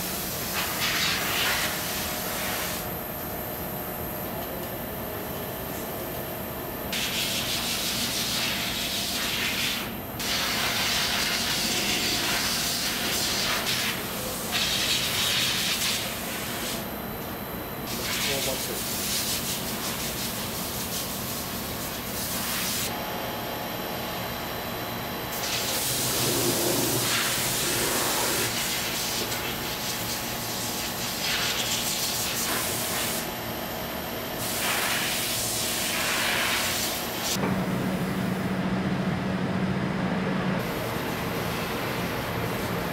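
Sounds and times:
low factory hum: 0.0 - 42.9
compressed air gun hissing: 7.0 - 16.8, 34.4 - 37.4.

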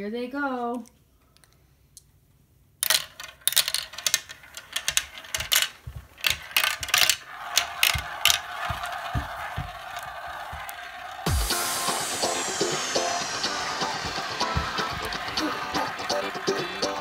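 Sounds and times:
marbles clattering through plastic tracks: 2.8 - 11.3
marbles whirring round plastic bowl: 2.8 - 17.0.

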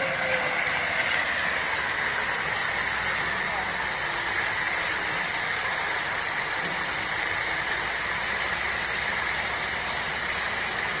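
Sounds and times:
crane engine idling: 0.0 - 11.0.

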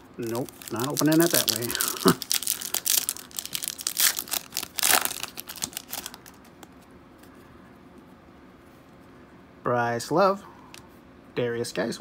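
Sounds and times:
foil wrapper crinkling and tearing: 0.0 - 6.6.

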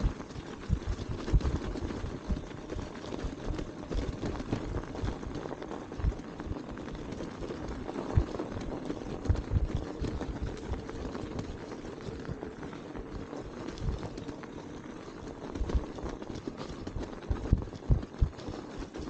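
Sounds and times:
low thumps: 0.0 - 1.6
tyres crunching through snow: 0.0 - 19.0.

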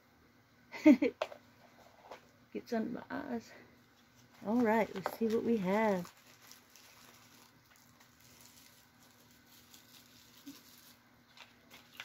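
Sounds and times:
low room hum: 0.0 - 12.0
packaging rustling and clicking: 4.2 - 12.0.

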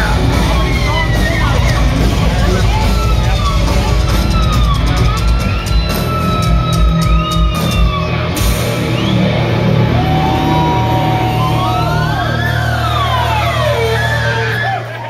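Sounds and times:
distorted guitars ringing: 0.0 - 15.0
metal band playing loudly: 0.0 - 15.0.

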